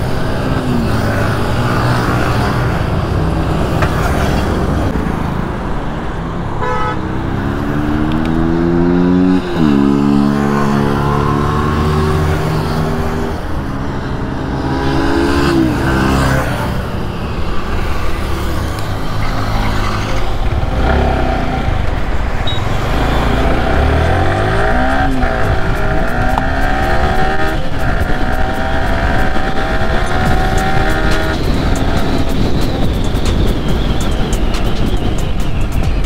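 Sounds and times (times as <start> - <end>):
wind and road noise: 0.0 - 36.0
motorcycle engine accelerating: 7.3 - 35.1.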